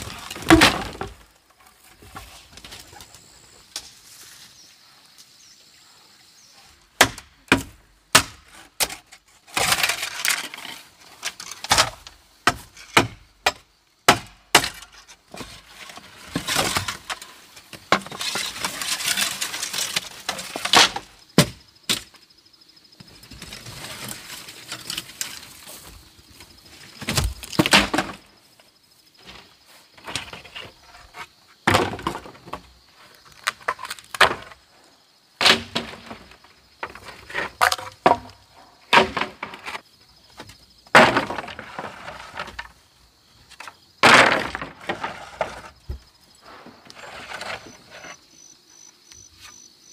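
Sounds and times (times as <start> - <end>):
plants rustling: 23.0 - 31.2.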